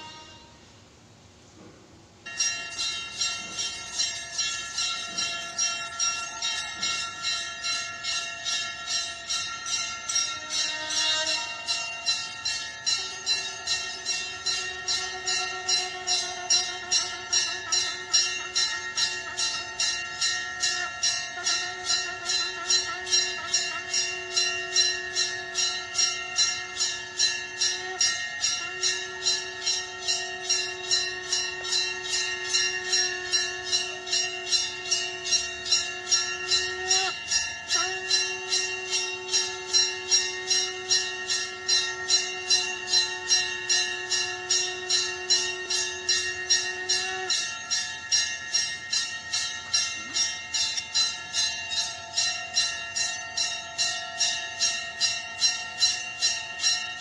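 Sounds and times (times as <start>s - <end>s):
conch shell blowing: 0.0s - 0.7s, 8.5s - 48.4s
bell rung in rapid strikes: 2.3s - 57.0s.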